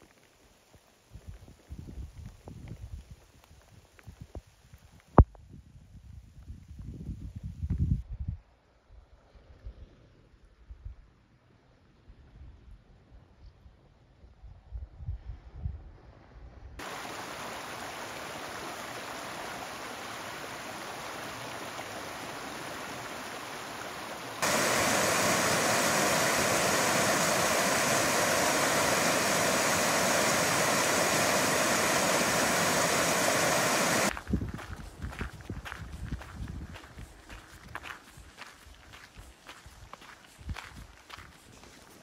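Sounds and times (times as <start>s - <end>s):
rush of white water: 16.8s - 34.1s.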